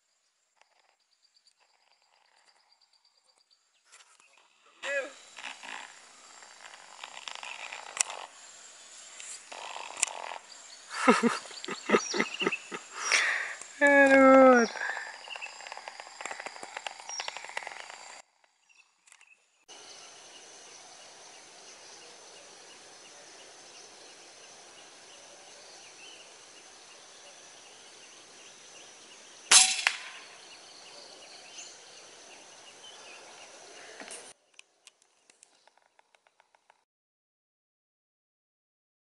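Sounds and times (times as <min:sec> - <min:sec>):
insects chirring: 0:00.0 - 0:36.8
air rifle crack: 0:29.5 - 0:30.3.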